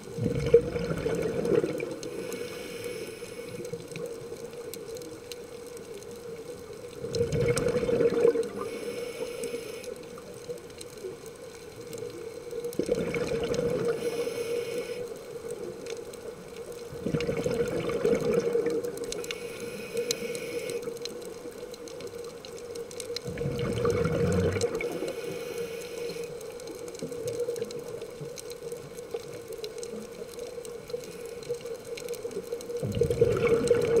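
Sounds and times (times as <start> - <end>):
exhaled bubbles rushing: 0.0 - 2.2, 7.0 - 8.7, 12.7 - 14.0, 16.9 - 19.2, 23.2 - 25.1, 32.8 - 34.0
regulator inhalation hiss: 2.0 - 3.7, 8.6 - 10.0, 13.9 - 15.2, 19.2 - 20.9, 24.8 - 26.5.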